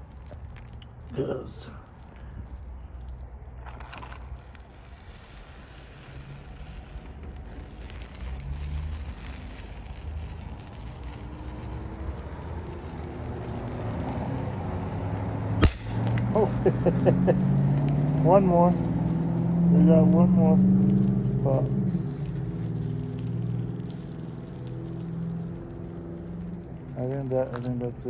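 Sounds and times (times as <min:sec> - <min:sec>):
fire burning on circuit board: 0:00.0 - 0:28.0
capacitor bursting with a pop: 0:15.4 - 0:18.3.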